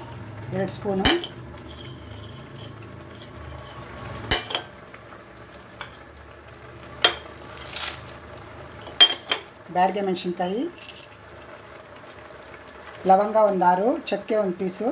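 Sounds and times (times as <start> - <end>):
chillies tipped into pan rustling: 7.3 - 8.2.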